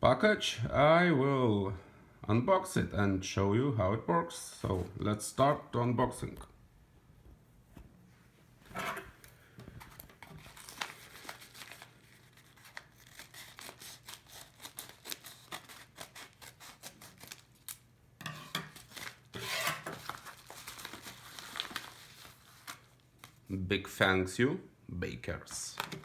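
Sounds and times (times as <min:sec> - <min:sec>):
plastic bag rustling: 0:09.7 - 0:15.5, 0:18.8 - 0:23.5.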